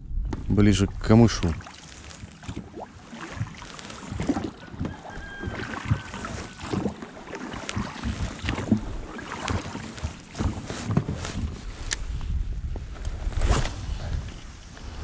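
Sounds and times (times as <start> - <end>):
water sloshing: 0.1 - 12.0
oars knocking on hull: 1.4 - 11.6.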